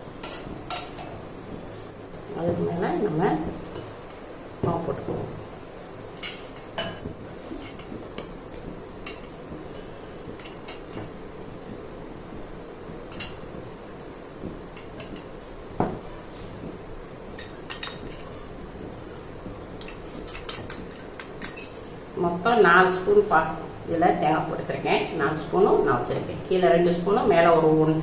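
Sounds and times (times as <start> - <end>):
metal spoon clinking on metal and glass: 19.8 - 21.9.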